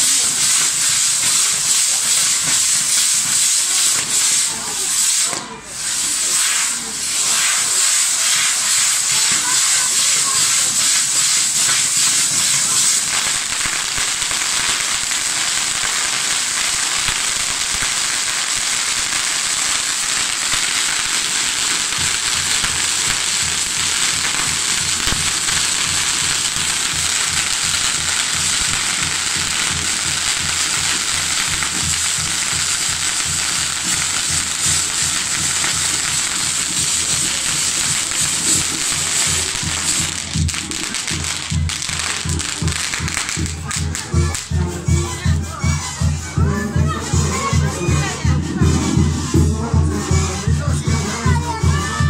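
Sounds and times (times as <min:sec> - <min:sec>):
firework spark fountains hissing: 0:00.0 - 0:46.1.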